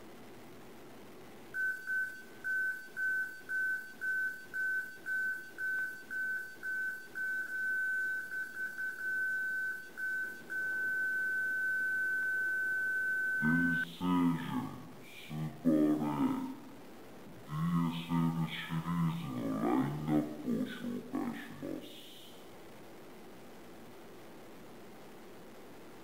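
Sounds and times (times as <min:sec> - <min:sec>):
electronic beeper high tone: 0:01.6 - 0:14.4.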